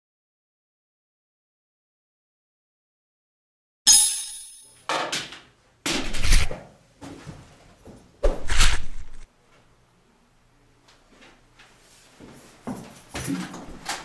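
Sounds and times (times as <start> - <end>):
bamboo swords clashing: 3.9 - 5.3.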